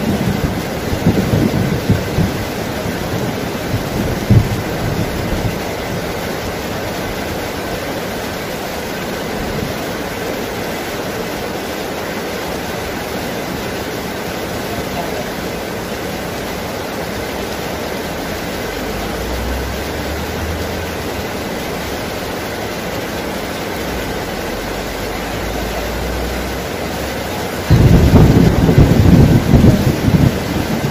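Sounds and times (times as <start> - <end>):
distant thunder rumbles: 0.0 - 7.4, 27.6 - 30.9
heavy rain on foliage: 0.0 - 30.9.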